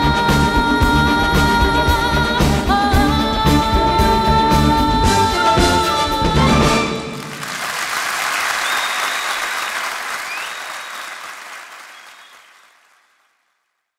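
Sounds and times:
audience applauding: 6.8 - 13.4.

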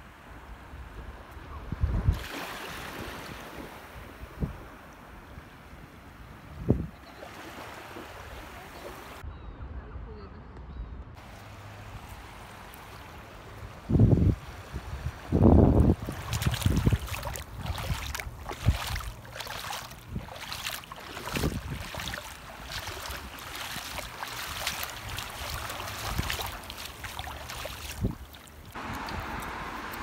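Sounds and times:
wind buffeting the microphone: 0.6 - 2.4, 3.0 - 7.0, 13.7 - 30.0
sea washing at the shoreline: 1.8 - 9.2, 11.2 - 30.0.

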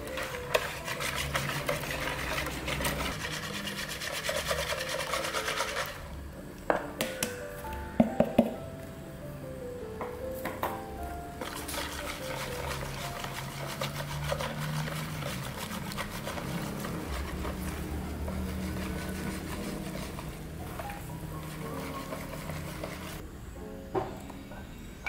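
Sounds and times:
wire whisk beating batter: 0.0 - 6.2, 11.4 - 23.2.

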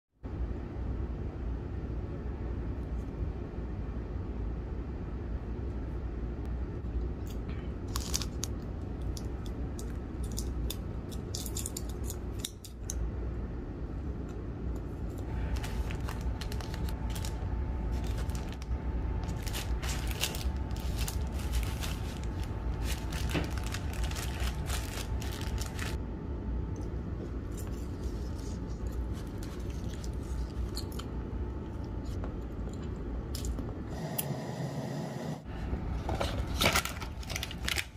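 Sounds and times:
steady low hum: 0.2 - 37.9
foil wrapper crinkling and tearing: 7.9 - 8.6, 15.3 - 26.0, 36.4 - 37.9
plastic sheet rustling: 15.3 - 26.0.

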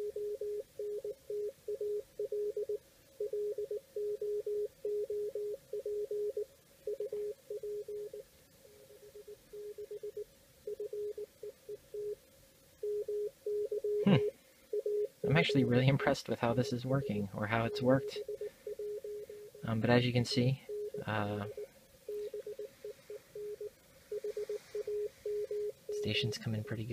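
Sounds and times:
morse code tone: 12.8 - 26.9.

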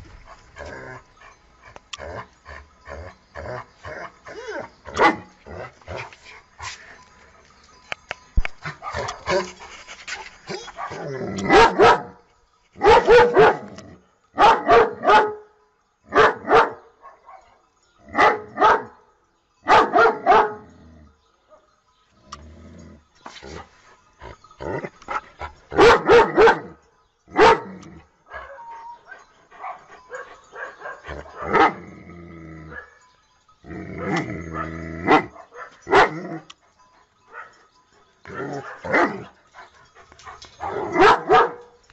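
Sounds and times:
dog barking: 5.0 - 5.3, 10.6 - 12.2, 12.8 - 13.7, 14.4 - 15.4, 16.1 - 17.5, 18.2 - 18.9, 19.7 - 20.6, 25.8 - 26.8, 27.4 - 27.7, 34.5 - 36.2, 38.4 - 39.2, 40.6 - 41.7.

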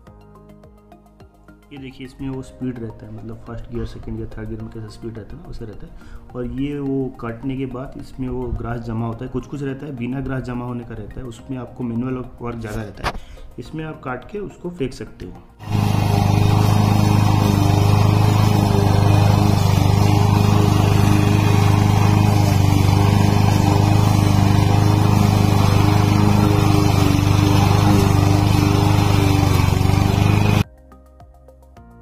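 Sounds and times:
lawn mower engine running: 15.6 - 30.6.

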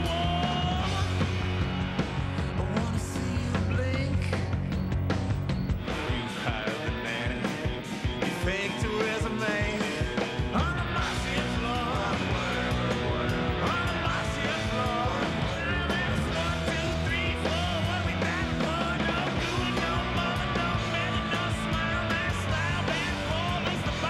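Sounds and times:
rock music with bass and drums: 0.0 - 24.0
person singing: 5.9 - 24.0.

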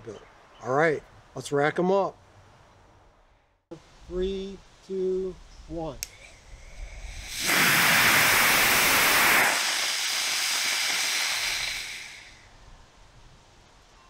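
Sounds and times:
rocket motor rushing hiss: 6.1 - 12.5.

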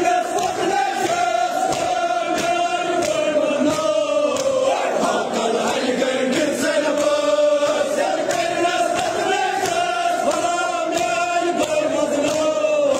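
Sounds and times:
crowd of men chanting: 0.0 - 12.9
hand slaps on chest: 0.4 - 4.7, 8.2 - 12.9.

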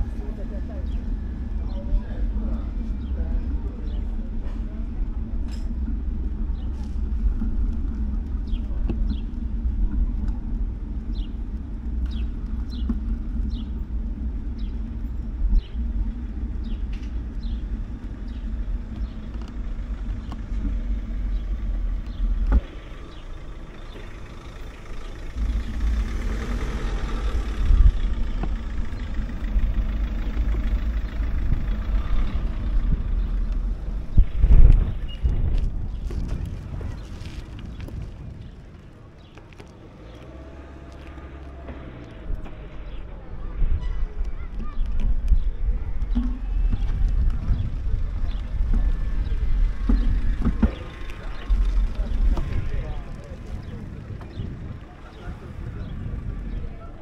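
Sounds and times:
low street rumble: 0.0 - 57.0.

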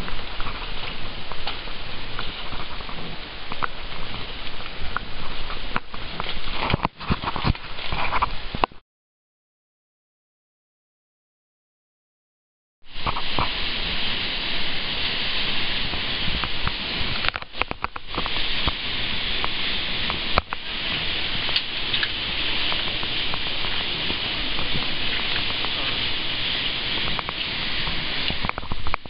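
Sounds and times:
waterfall rushing: 12.9 - 29.0.

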